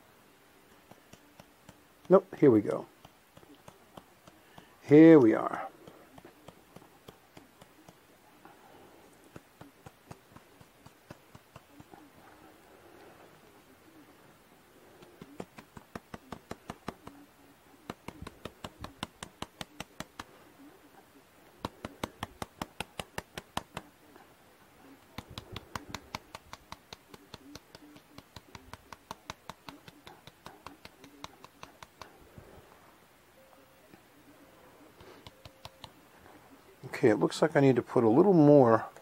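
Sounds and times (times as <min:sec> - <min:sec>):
flock applicator clicking rapidly: 0:15.0 - 0:17.2, 0:17.9 - 0:20.3, 0:21.6 - 0:23.8, 0:25.0 - 0:32.1.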